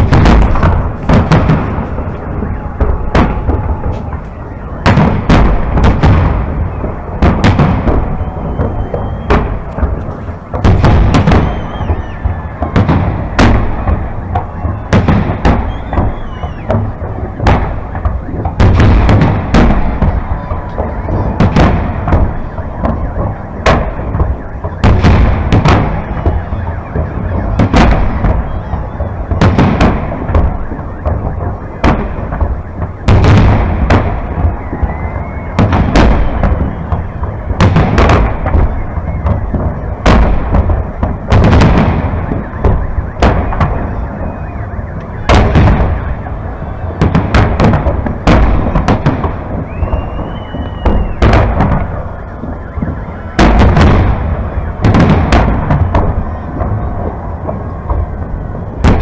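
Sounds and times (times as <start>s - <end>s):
firework shells bursting: 0.0s - 26.4s, 47.0s - 52.1s
rumble of distant explosions: 0.0s - 59.0s.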